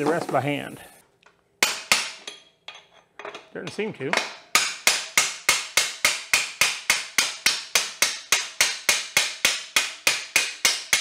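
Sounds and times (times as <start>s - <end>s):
hammer striking metal: 1.6s - 2.8s, 4.1s - 11.0s.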